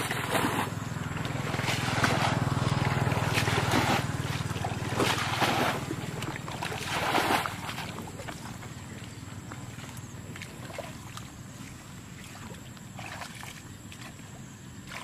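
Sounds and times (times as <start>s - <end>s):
bucket splashing water: 0.0s - 8.5s
steady low hum: 0.0s - 15.0s.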